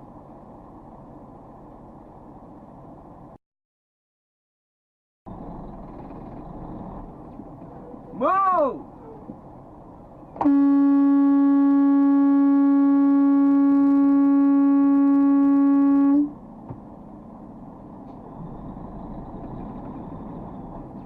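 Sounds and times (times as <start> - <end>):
vehicle horn blast: 10.4 - 16.3.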